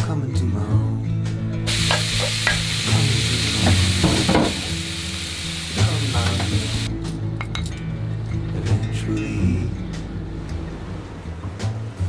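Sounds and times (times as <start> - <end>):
background music: 0.0 - 12.0
food sizzling in a frying pan: 1.7 - 6.9.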